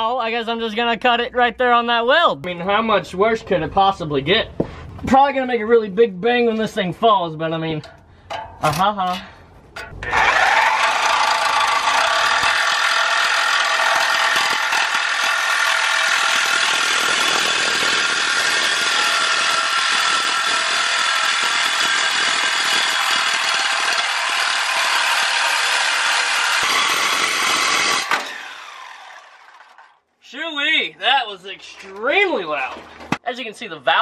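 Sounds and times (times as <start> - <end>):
reciprocating saw cutting metal pipe: 9.8 - 30.0.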